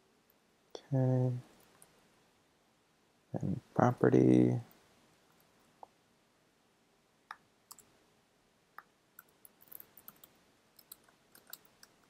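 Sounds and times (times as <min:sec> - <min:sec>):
keyboard keys clicking: 0:09.2 - 0:12.0.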